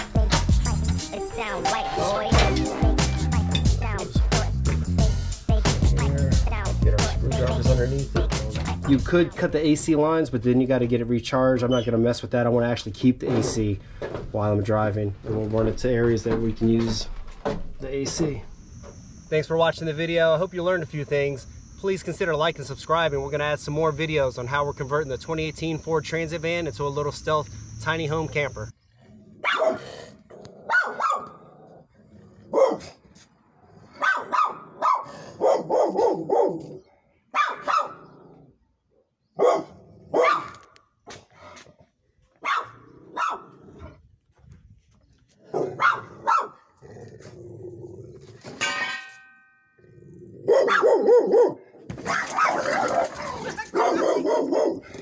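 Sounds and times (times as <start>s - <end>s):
dog barking: 29.4s - 30.0s, 30.6s - 31.4s, 32.5s - 33.0s, 33.9s - 38.2s, 39.4s - 40.6s, 42.4s - 43.6s, 45.5s - 46.6s, 50.4s - 55.0s.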